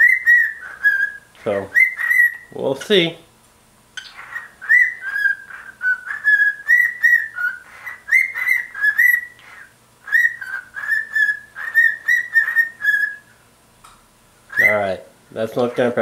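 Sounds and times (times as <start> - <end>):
cockatiel whistling: 0.0 - 2.5, 4.0 - 13.4, 14.5 - 14.9.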